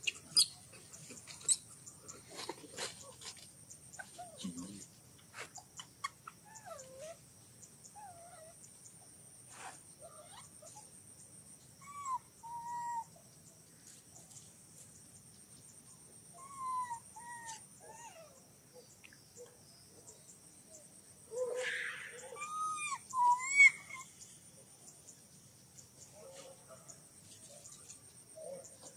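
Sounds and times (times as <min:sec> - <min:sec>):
baby monkey whimper calls: 0:11.8 - 0:13.1, 0:16.4 - 0:18.4, 0:21.3 - 0:24.1.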